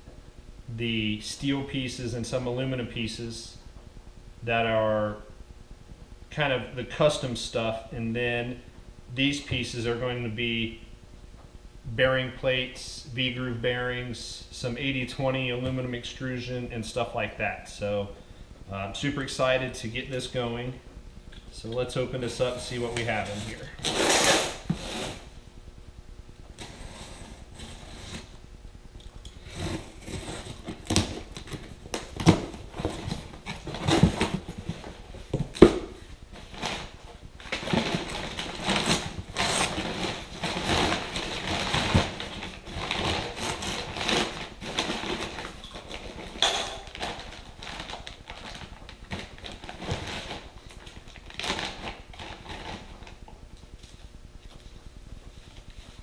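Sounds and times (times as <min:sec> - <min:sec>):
packing paper rustling: 0:36.4 - 0:53.2
plastic bags crinkling: 0:36.4 - 0:53.2.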